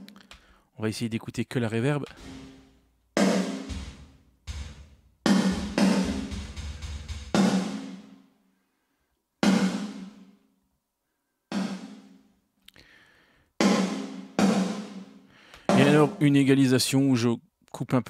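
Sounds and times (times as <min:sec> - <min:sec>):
reverberant snare drum hits: 0:02.1 - 0:08.1, 0:15.7 - 0:16.2.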